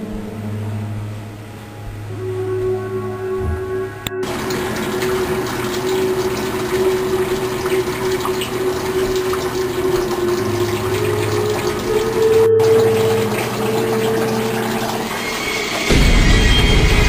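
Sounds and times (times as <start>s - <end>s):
water running from a tap: 4.2s - 17.0s.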